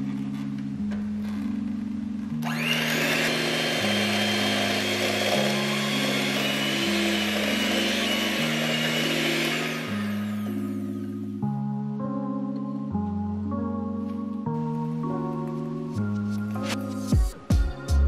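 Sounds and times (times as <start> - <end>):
electric hand mixer whining: 2.3 - 11.3.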